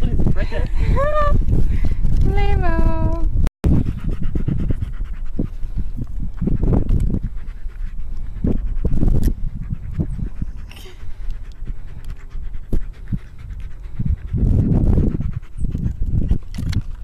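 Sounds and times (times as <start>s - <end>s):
dog panting: 3.7s - 17.0s.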